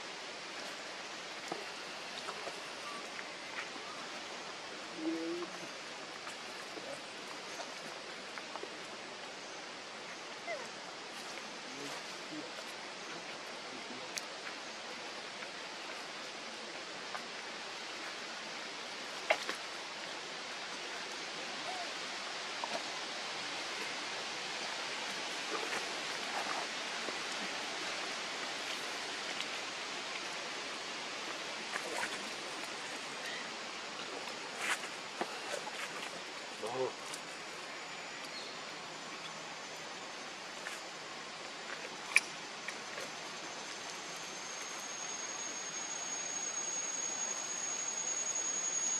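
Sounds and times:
outdoor background hiss: 0.0 - 48.9.

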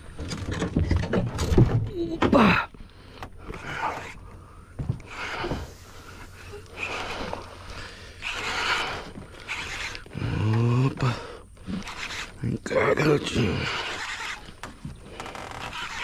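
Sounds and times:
person breathing close to microphone: 2.8 - 12.0.

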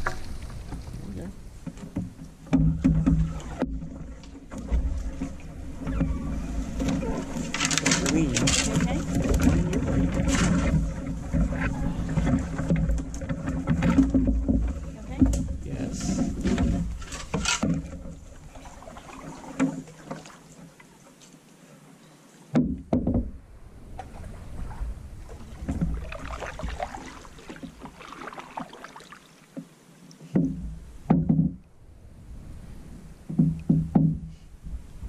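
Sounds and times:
knocks on canoe: 0.0 - 3.9, 4.5 - 18.8, 22.5 - 23.4, 25.6 - 28.7, 30.3 - 31.6, 33.2 - 34.4
paddle strokes splashing: 0.0 - 21.7, 23.1 - 34.0.

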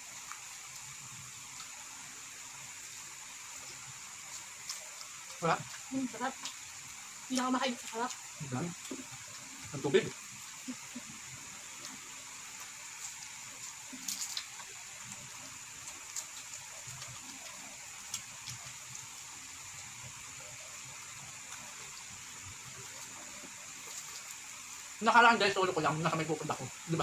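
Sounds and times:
background hiss: 0.0 - 27.0
chewing and mouth smacks: 4.2 - 6.6.

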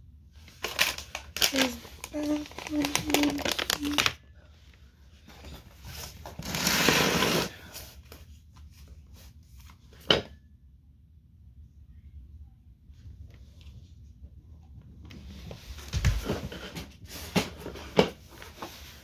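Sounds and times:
paper rustling: 0.5 - 4.2.

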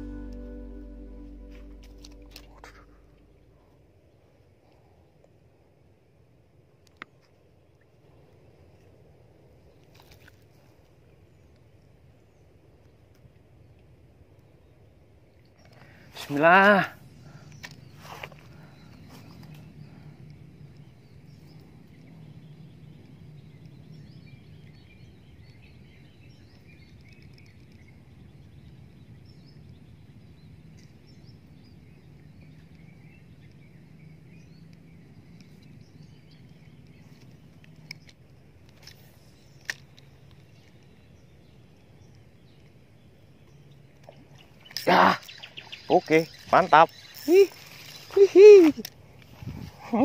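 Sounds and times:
steady low hum: 0.0 - 4.1.

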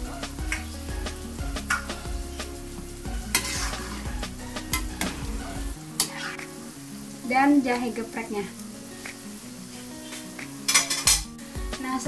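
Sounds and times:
steady hiss: 0.0 - 12.0
ladle clinking and scraping pot: 3.3 - 4.0.

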